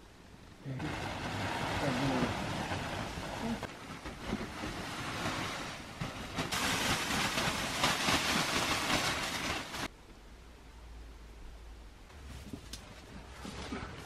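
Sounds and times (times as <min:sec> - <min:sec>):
plastic sheeting rustling: 0:00.7 - 0:09.9
snow sliding off roof: 0:00.7 - 0:09.9.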